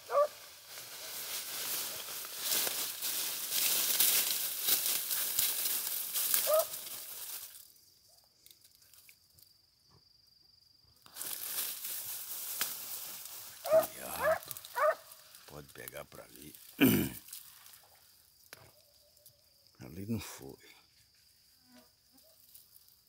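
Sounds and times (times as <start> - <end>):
grass and leaves rustling: 0.0 - 9.6, 11.0 - 23.0
animal yelp: 6.4 - 6.7, 13.6 - 15.1.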